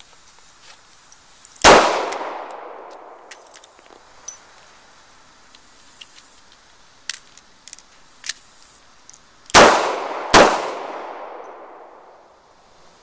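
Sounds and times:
gun handling clicks: 1.1s - 4.6s, 5.5s - 9.7s.

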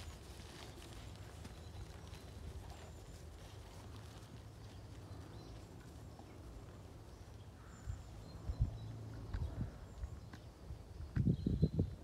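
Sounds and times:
horse hoofbeats on grass: 0.0s - 7.5s.

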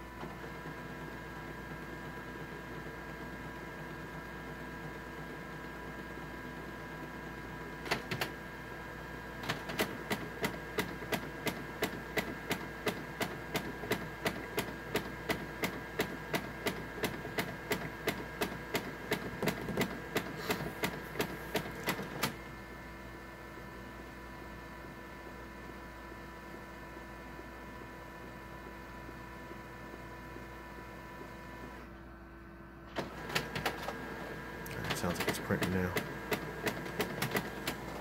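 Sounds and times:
printer clicking: 7.8s - 8.4s, 9.4s - 22.4s, 32.9s - 38.0s.

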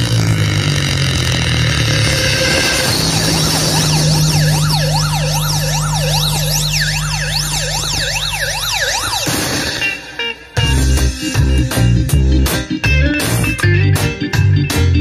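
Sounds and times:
steady deep bass tone: 0.0s - 9.3s, 10.6s - 15.0s
siren-like sweeping tone: 1.4s - 10.4s.

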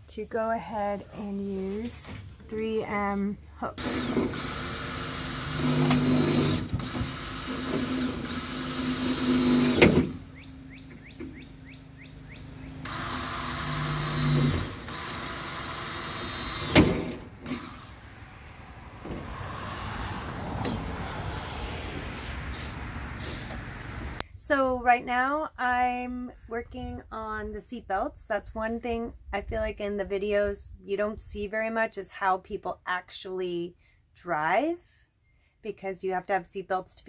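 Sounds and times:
cordless drill running: 3.8s - 10.3s, 12.8s - 18.2s.

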